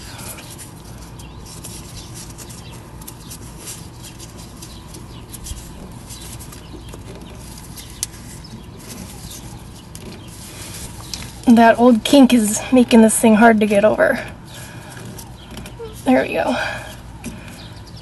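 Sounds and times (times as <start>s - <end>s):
hands handling rubber hose: 0.0s - 12.2s
steady low hum: 0.0s - 18.0s.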